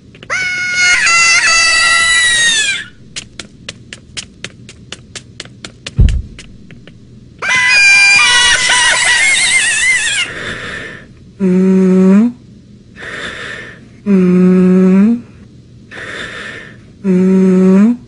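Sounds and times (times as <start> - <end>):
rubber chicken toy squawk: 0.3 - 2.9
low thud: 6.0 - 7.2.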